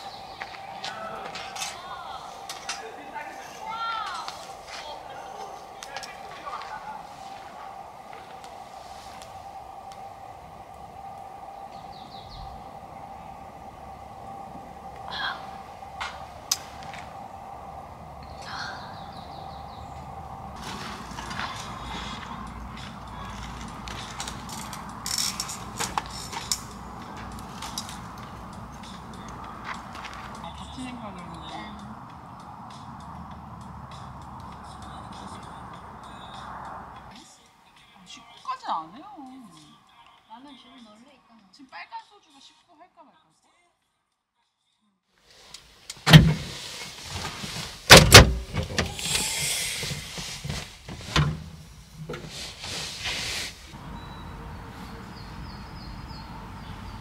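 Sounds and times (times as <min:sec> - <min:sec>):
steady low hum: 0:00.0 - 0:37.1
rustling and handling noise: 0:20.6 - 0:28.9, 0:45.3 - 0:53.8
brief rustle: 0:45.3 - 0:53.7.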